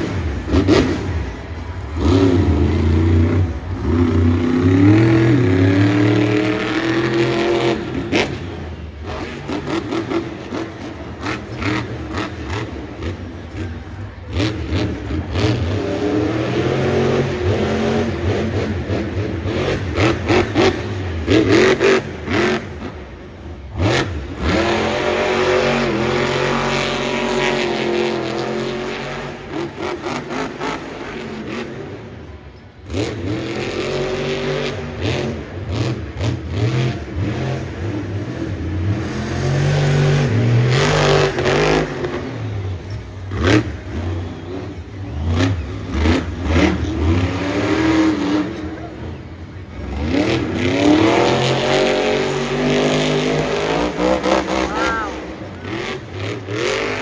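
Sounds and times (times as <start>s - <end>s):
truck engine revving hard: 0.0s - 57.0s.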